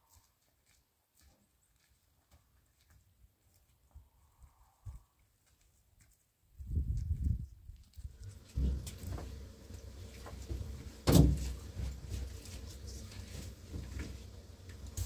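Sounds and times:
loud thump: 11.0 - 11.6.

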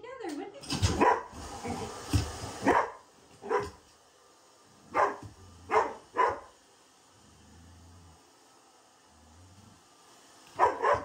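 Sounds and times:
dog barking: 0.9 - 1.4, 2.6 - 3.8, 4.9 - 6.5, 10.6 - 11.0.

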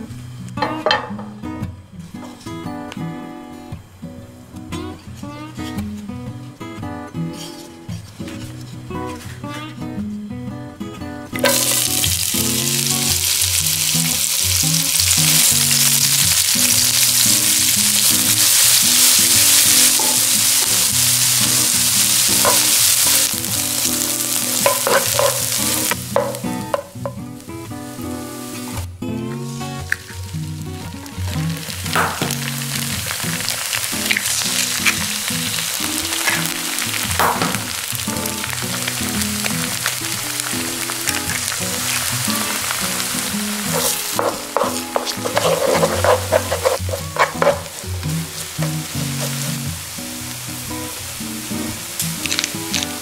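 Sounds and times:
background music: 9.0 - 53.0
onions sizzling in a frying pan: 11.4 - 53.0
wooden spatula stirring: 38.8 - 47.8.

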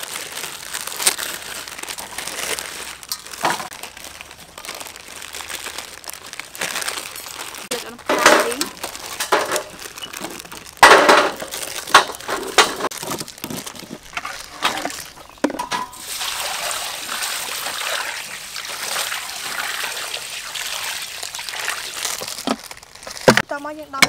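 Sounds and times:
water pouring into bowl: 16.0 - 22.3.

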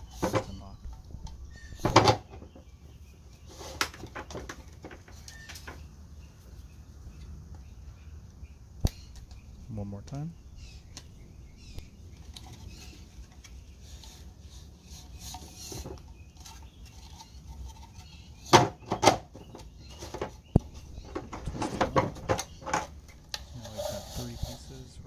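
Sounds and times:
plastic hose rubbing and scraping: 0.0 - 2.6, 3.4 - 5.7, 10.9 - 25.0.

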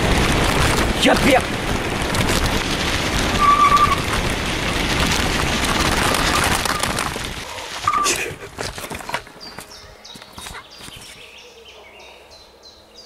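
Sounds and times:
wind rushing over microphone: 0.0 - 8.6
tyres rolling on dirt road: 0.0 - 11.1.

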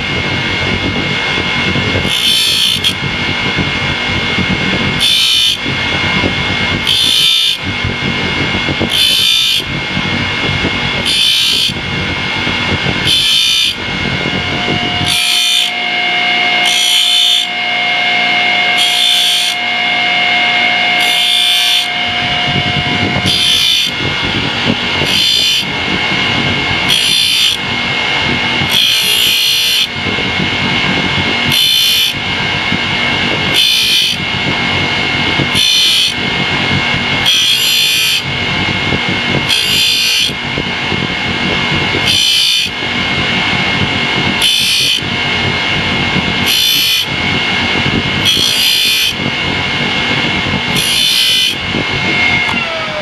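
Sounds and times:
grinding wheel running: 0.0 - 53.0
short grinds on metal: 2.0 - 3.0, 6.8 - 7.6, 8.9 - 9.7, 11.0 - 11.8, 13.0 - 13.8, 14.4 - 24.0, 25.0 - 25.7, 26.8 - 27.6, 28.7 - 29.9, 31.4 - 32.2, 37.2 - 38.3, 39.4 - 40.4, 44.4 - 45.1, 46.4 - 47.1, 48.2 - 49.2.

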